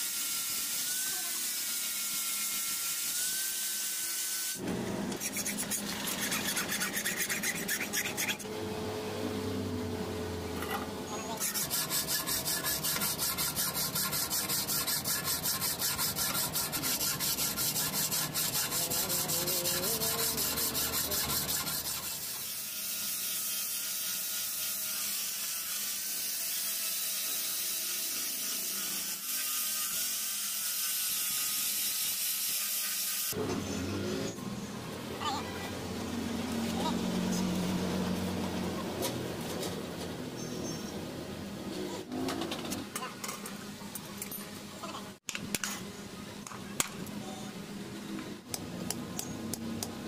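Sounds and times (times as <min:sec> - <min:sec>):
file rasping on steel blade: 0:05.1 - 0:08.5, 0:11.4 - 0:33.1.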